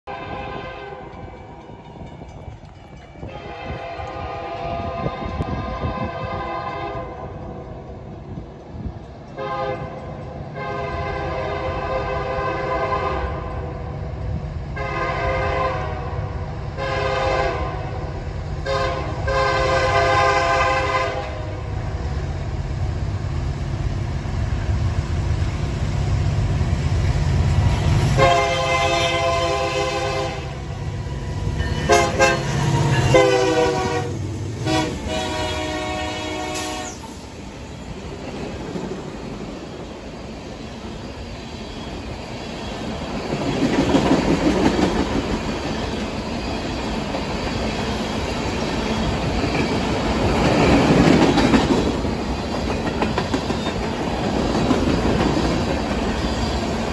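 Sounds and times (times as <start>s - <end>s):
locomotive air horn blasts: 0.1s - 1.2s, 3.3s - 7.3s, 9.4s - 10.0s, 10.6s - 13.7s, 14.8s - 18.0s, 18.6s - 21.7s, 28.1s - 30.6s, 31.6s - 37.1s.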